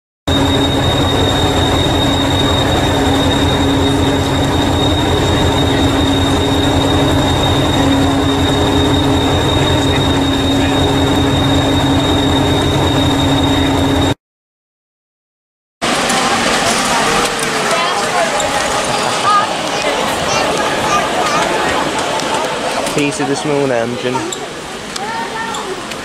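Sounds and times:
diesel engine idling: 0.3 - 14.1
high-pitched whine: 0.3 - 14.2, 15.8 - 24.7.

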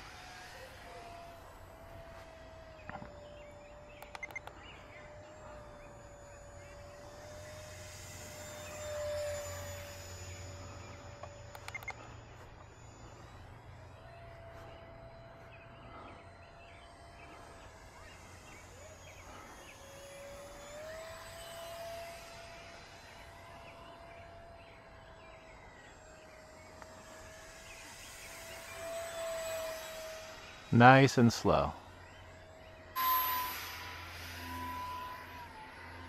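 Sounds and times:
model plane motor whining: 0.0 - 36.0.

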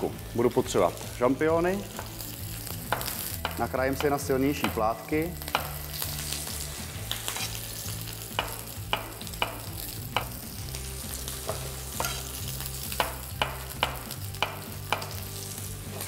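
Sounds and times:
steak sizzling in a pan: 0.0 - 16.0.

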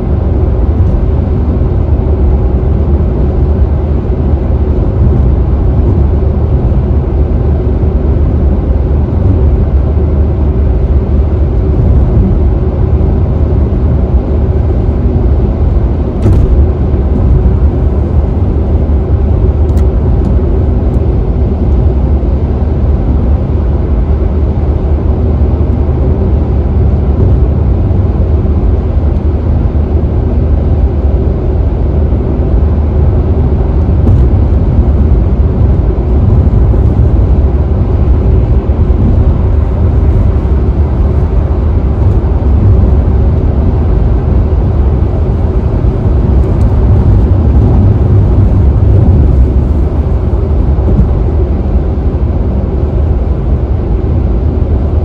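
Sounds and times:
car tyre and road noise: 0.0 - 55.0.

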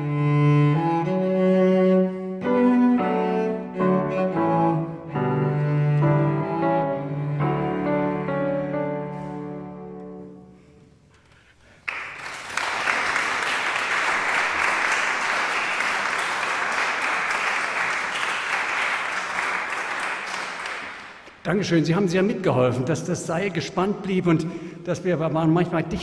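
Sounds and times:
cello note: 0.0 - 10.9
audience applause: 11.8 - 21.3.

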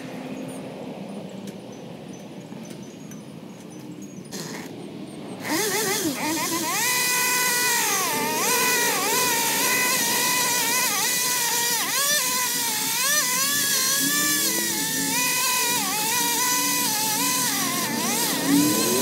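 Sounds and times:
chainsaw cutting branches: 4.3 - 4.7, 5.4 - 19.0.

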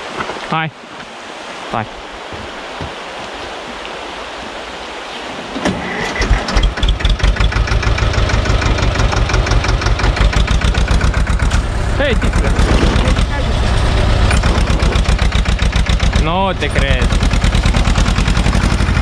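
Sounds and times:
river rushing: 0.0 - 19.0
tractor diesel engine starting and chugging: 5.6 - 19.0.

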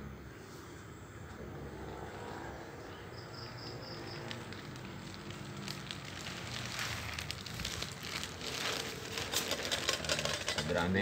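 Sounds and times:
plastic bags crinkling: 4.0 - 11.0.

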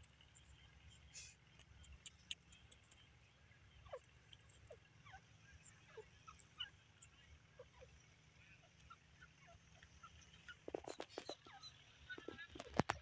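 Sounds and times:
bird pecking and scratching soil: 0.0 - 3.2, 3.9 - 5.0, 9.8 - 13.0.

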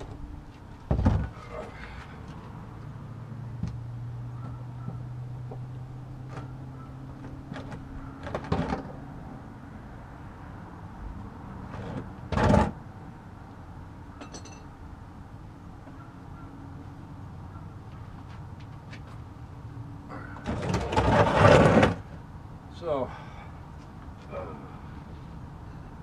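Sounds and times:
plastic pan scraping on concrete: 11.7 - 12.8, 20.4 - 22.1.

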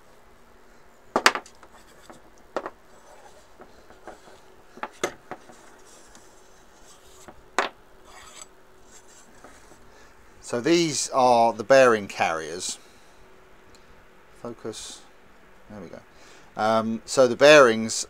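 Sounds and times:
faint scraping and rubbing: 1.6 - 2.3, 2.9 - 7.4, 8.0 - 9.9.

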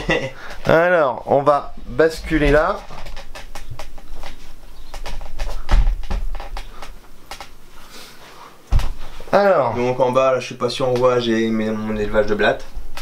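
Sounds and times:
handling clicks and knocks: 2.0 - 7.6
dull thump: 5.1 - 6.7.

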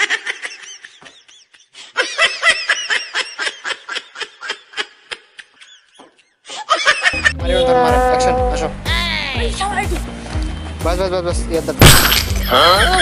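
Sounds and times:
high-pitched laughter: 0.0 - 8.7.

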